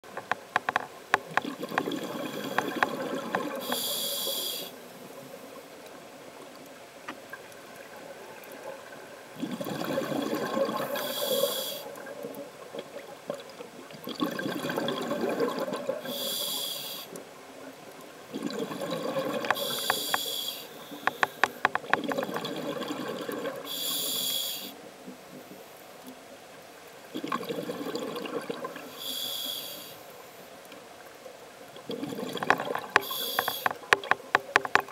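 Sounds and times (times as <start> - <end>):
exhaled bubbles rushing: 1.4 - 3.6, 9.4 - 10.8, 14.1 - 16.0, 18.3 - 19.9, 21.8 - 23.7
regulator hissing inhale: 3.6 - 4.8, 10.9 - 11.9, 16.1 - 17.2, 19.5 - 21.6, 23.7 - 24.8, 28.9 - 30.1, 33.0 - 33.8.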